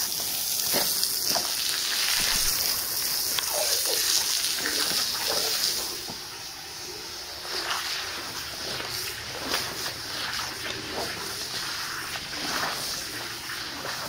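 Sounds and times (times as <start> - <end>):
water spraying and splashing: 0.0 - 14.0
bristles scrubbing rug: 7.0 - 14.0.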